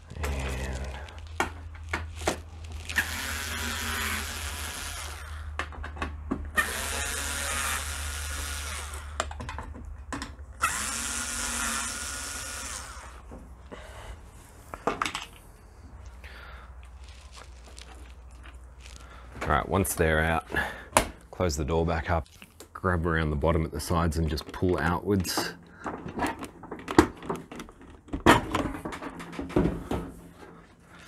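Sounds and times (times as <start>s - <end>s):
electric screwdriver whirring: 2.9s - 5.6s, 6.6s - 9.2s, 10.6s - 13.2s.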